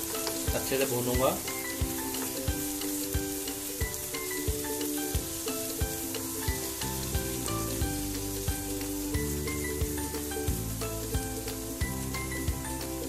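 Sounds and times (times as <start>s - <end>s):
background music with steady beat: 0.0s - 13.0s
vegetables sizzling in a pan: 0.0s - 13.0s.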